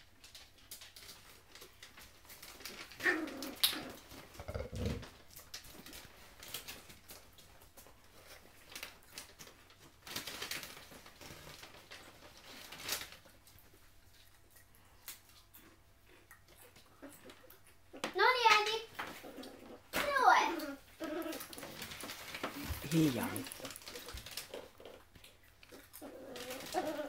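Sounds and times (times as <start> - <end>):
puppy vocalizing: 3.0 - 5.2, 15.4 - 27.0
puppies scuffling on rug: 19.9 - 24.8.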